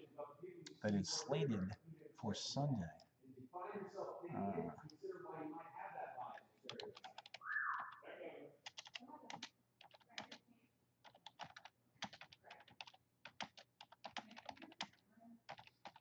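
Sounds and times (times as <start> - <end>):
short vocal sound: 4.3 - 4.8
typing on computer keyboard: 6.7 - 7.9, 8.6 - 10.4, 11.0 - 16.0.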